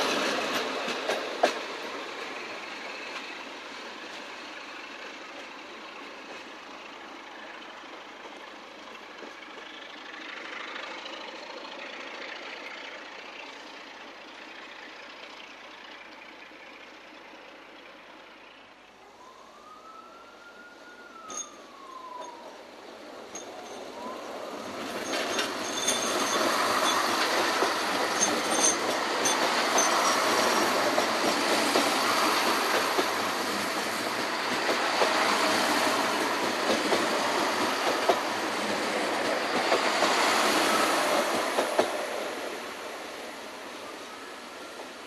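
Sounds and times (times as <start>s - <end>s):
diesel train engines passing: 0.0s - 45.0s
high wheel squeals: 23.3s - 30.7s
wheels clattering over rail joints: 23.3s - 33.4s.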